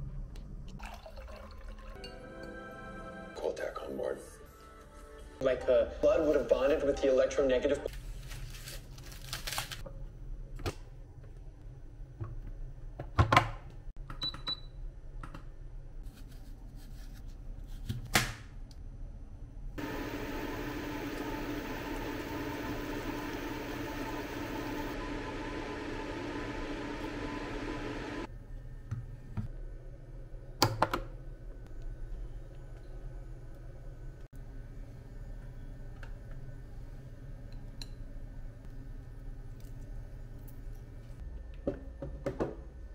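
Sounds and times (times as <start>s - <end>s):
noodles boiling in a pan: 19.8s - 28.3s.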